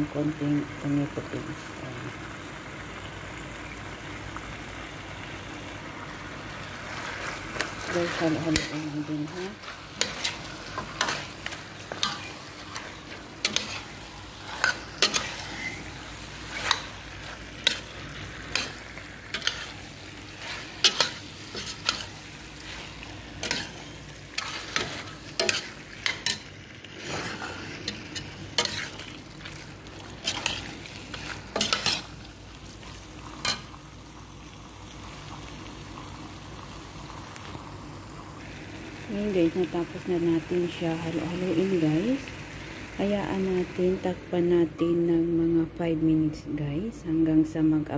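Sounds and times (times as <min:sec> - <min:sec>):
food sizzling: 0:00.0 - 0:47.9
metal spoon scraping a pot: 0:11.9 - 0:17.0, 0:30.2 - 0:30.7.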